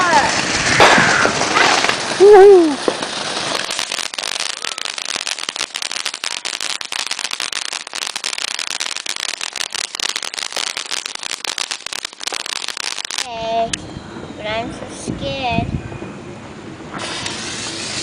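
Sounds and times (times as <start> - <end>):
firework hiss: 0.0 - 13.3, 17.0 - 18.0
firework crackling: 0.0 - 13.8, 17.0 - 18.0.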